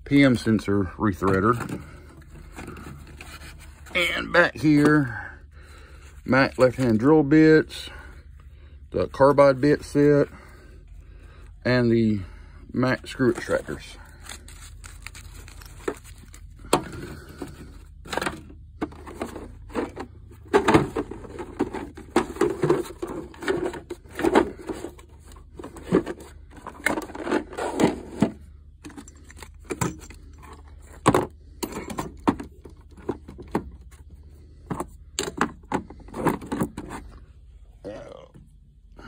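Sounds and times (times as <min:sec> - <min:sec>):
tools and cases clattering: 0:01.1 - 0:05.1, 0:14.6 - 0:37.2.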